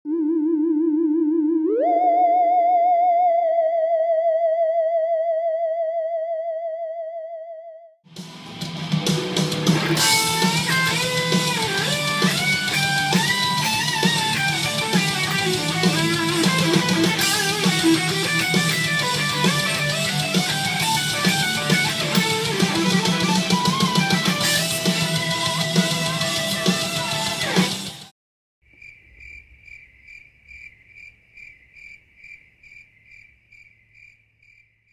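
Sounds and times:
backing track: 0:08.1 - 0:28.1
electric guitar solo: 0:09.4 - 0:27.9
cricket chirping: 0:28.7 - 0:34.9.

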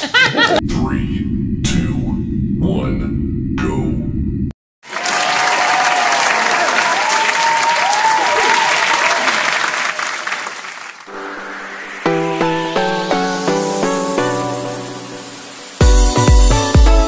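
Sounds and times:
audience applause and cheering: 0:04.8 - 0:12.2
music: 0:11.1 - 0:17.0.

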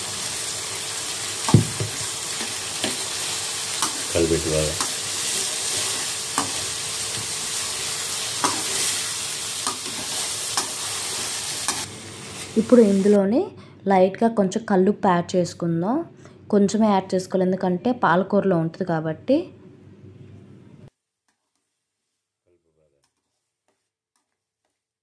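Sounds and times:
tomatoes sizzling in oil: 0:00.0 - 0:13.3
spatula scraping pan: 0:08.4 - 0:11.9.

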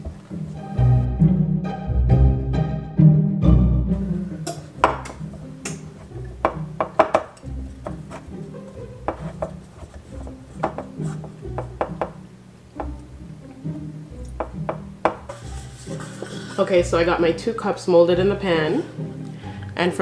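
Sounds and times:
instrumental background music: 0:00.0 - 0:20.0.

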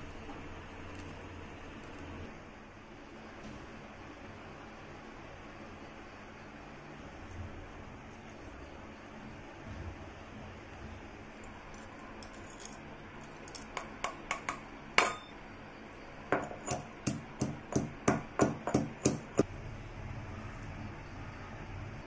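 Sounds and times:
stone pestle pounding in mortar: 0:16.3 - 0:19.5.

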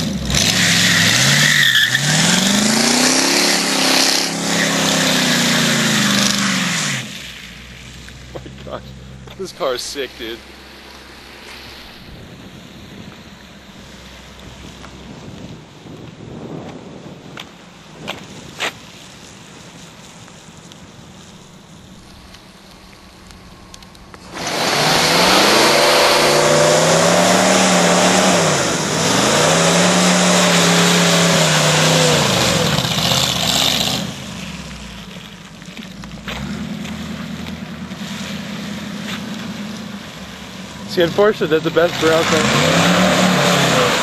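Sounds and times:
car engine revving: 0:00.0 - 0:15.3, 0:21.9 - 0:44.0
tyre spinning on wet pavement: 0:21.3 - 0:44.0.

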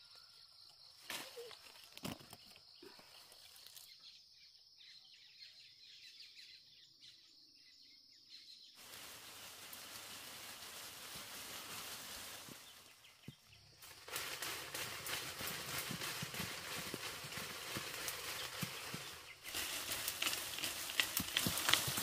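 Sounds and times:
broad rushing hiss: 0:08.8 - 0:13.0.

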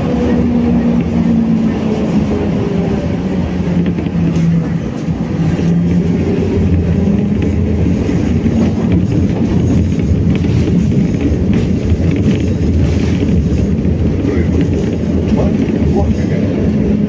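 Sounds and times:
tram hum: 0:00.0 - 0:17.0
tram wheels rumbling on rails: 0:00.0 - 0:17.0.

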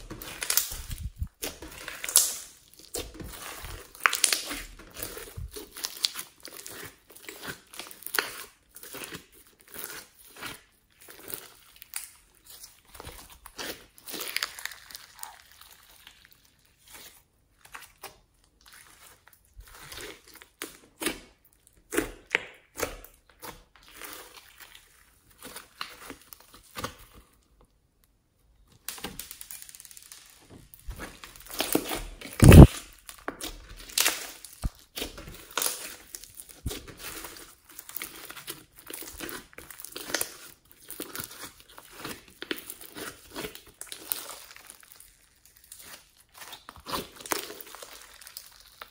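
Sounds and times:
slime crackling and squishing: 0:00.0 - 0:48.9
loud slime pop: 0:32.4 - 0:32.8.

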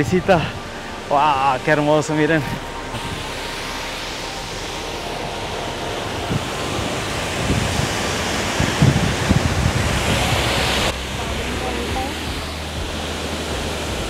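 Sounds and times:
waterfall rushing: 0:00.0 - 0:14.0
wind buffeting microphone: 0:05.8 - 0:14.0.

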